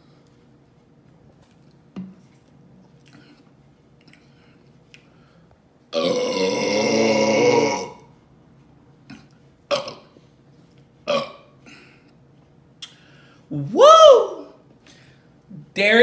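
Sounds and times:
woman burping: 6.0 - 8.0, 9.7 - 10.1, 11.1 - 11.8.

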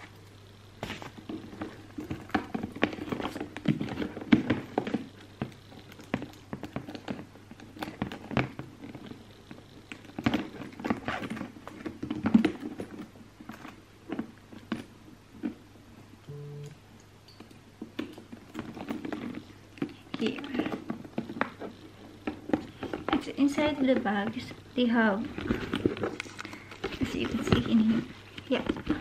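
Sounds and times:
handbag taps and rustles: 0.8 - 15.6.

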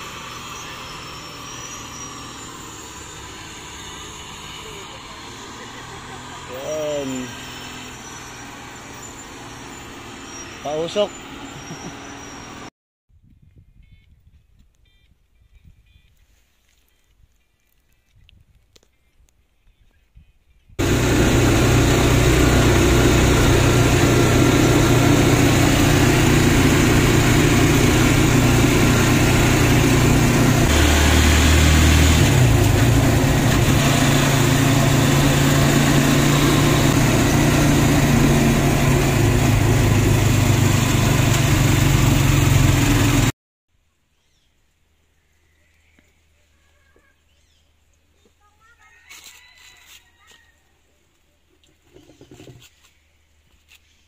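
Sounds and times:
vehicle engine running: 0.0 - 12.7, 20.8 - 43.3
road and wind rush: 0.0 - 14.7, 20.8 - 43.3.

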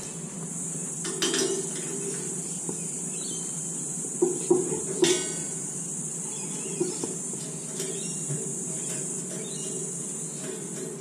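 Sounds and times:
high-pitched insect chorus: 0.0 - 11.0.

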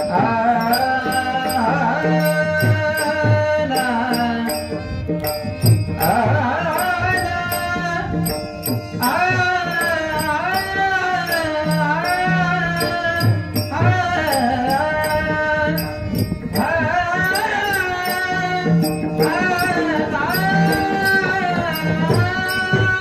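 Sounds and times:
man singing sliding phrases: 9.0 - 23.0.

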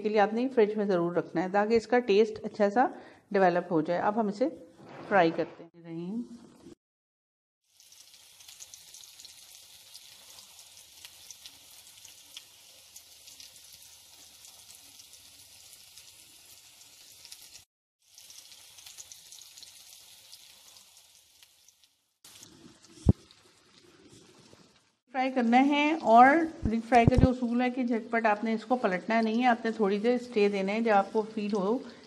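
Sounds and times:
food deep-frying in hot oil: 7.6 - 32.0.

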